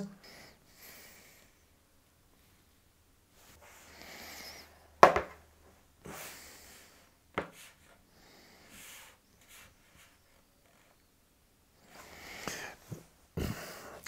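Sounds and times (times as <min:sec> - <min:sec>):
soft rubbing: 0:08.7 - 0:11.1.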